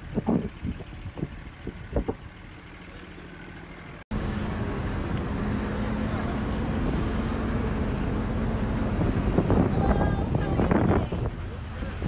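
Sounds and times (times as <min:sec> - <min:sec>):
wind on microphone: 0:00.0 - 0:02.2, 0:08.6 - 0:12.0
vehicle engine hum: 0:00.0 - 0:12.0.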